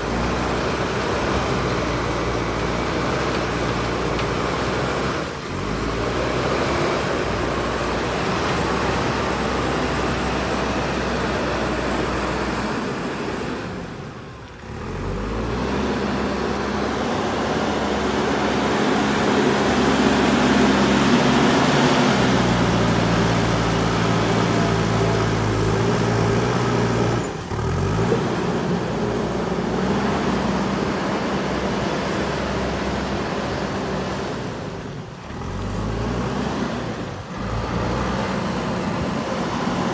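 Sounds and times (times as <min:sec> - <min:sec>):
diesel engine running under load: 0:00.0 - 0:39.9.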